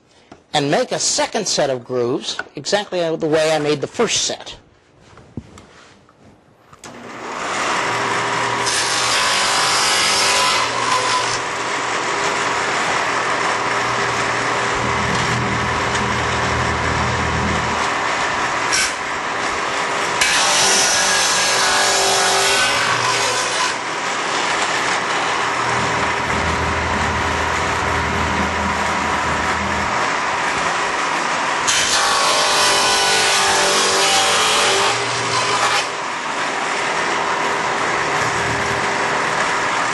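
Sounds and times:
table saw running: 0:06.8 - 0:39.9
saw blade cutting wood: 0:06.9 - 0:36.5.

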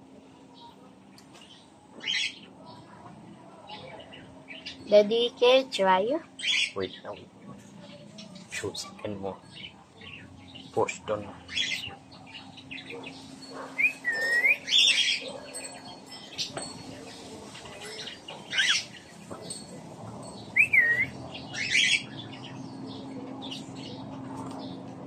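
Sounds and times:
cockatiel chirping and whistling: 0:13.8 - 0:15.0, 0:20.6 - 0:21.1.

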